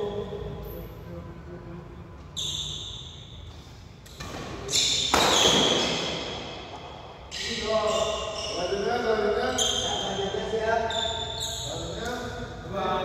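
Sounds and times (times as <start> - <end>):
shoes squeaking on court: 2.3 - 12.2
rackets hitting shuttlecock: 4.0 - 7.4.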